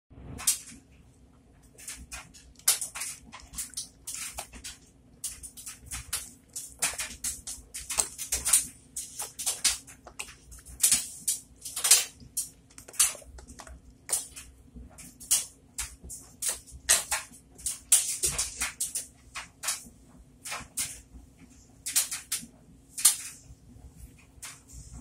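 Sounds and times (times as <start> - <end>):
sponges squelching: 1.6 - 17.3.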